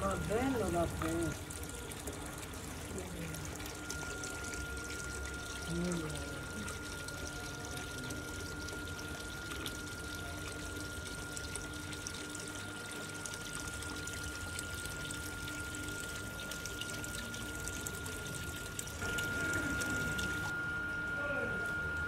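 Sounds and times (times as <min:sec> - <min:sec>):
water trickling down a stream: 0:00.0 - 0:20.6
thin steady high tone: 0:00.0 - 0:22.0.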